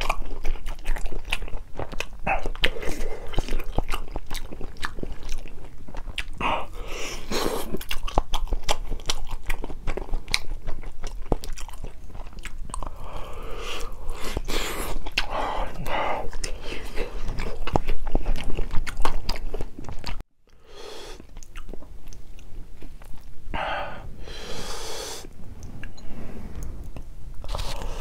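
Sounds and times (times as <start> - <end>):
chewing and biting food: 0.0 - 20.2, 21.2 - 23.5, 26.6 - 28.0
wet mouth clicks: 21.1 - 23.3.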